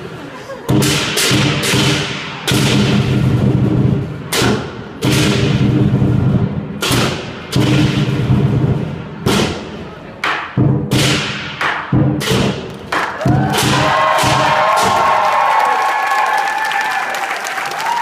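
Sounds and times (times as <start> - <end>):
large drum beaten hard: 0.7 - 9.6.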